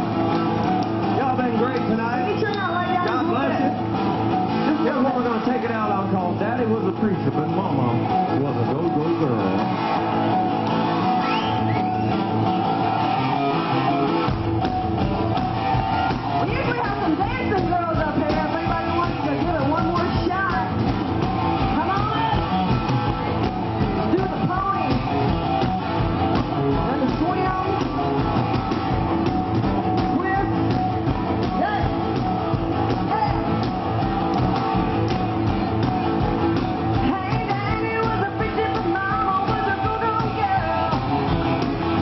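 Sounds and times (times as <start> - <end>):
rock band playing: 0.0 - 42.0
woman singing: 37.0 - 40.8.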